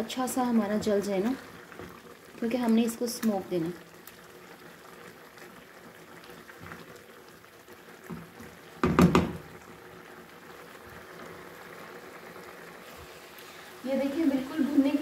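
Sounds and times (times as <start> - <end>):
meat mixture bubbling in a pan: 0.0 - 15.0
knocks: 8.8 - 9.4.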